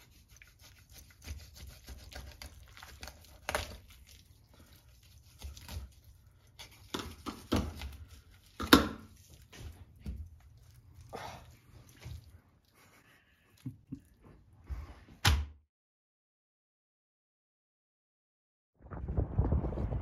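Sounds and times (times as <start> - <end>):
knife tearing and scraping fish: 0.0 - 13.0.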